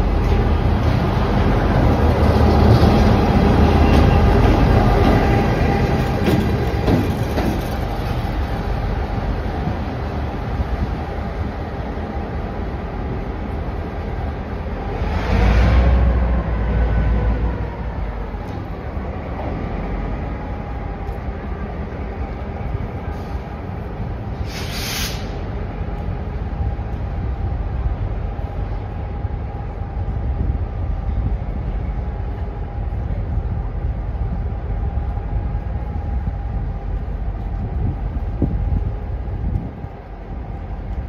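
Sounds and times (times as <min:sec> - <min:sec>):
train wheels rumbling on rail: 0:00.0 - 0:41.0
short air hiss: 0:24.4 - 0:25.4.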